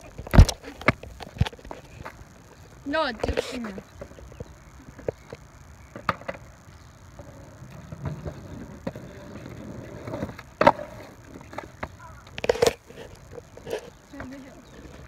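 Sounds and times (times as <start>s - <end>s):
skateboard rolling on concrete: 0.0s - 15.0s
skateboard wheels clacking: 3.2s - 6.6s, 7.2s - 15.0s.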